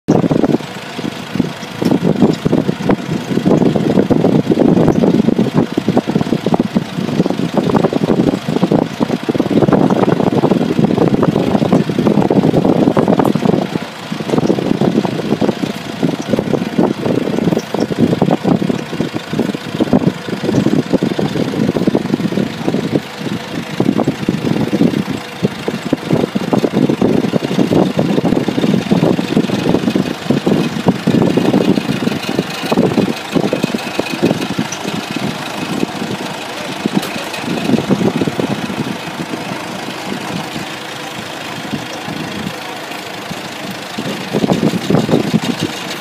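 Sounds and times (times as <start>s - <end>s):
forklift engine idling: 0.1s - 46.0s
knocks and clanks: 44.0s - 46.0s.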